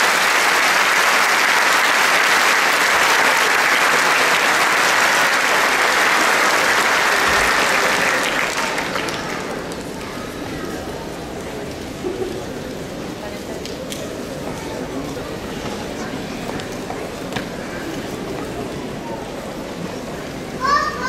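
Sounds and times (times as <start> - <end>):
congregation applauding: 0.0 - 10.2.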